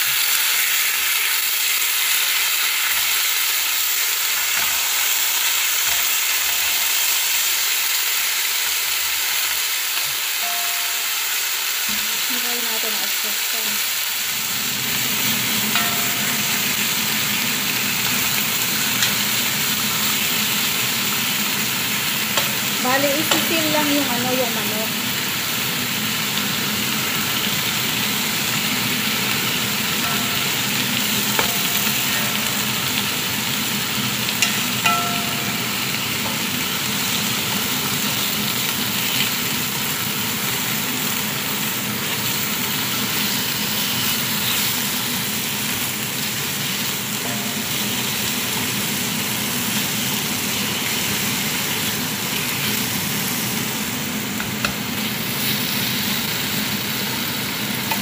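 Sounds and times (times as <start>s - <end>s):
chicken sizzling in frying pan: 0.0s - 58.0s
spatula tapping pan: 15.7s - 17.1s, 22.3s - 23.5s, 30.0s - 33.1s, 34.3s - 36.6s, 54.4s - 54.8s.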